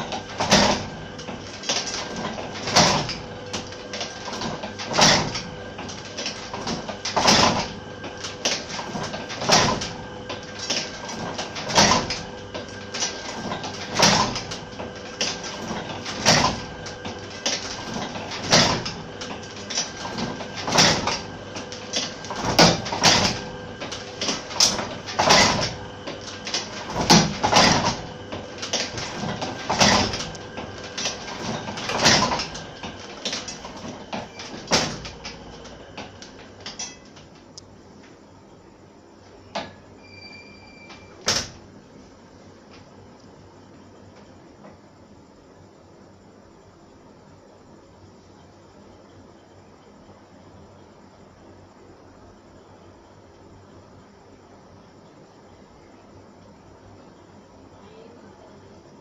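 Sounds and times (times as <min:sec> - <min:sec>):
letterpress machine clanking: 0:00.0 - 0:37.6, 0:39.5 - 0:41.8
faint steady hum: 0:00.0 - 0:59.0.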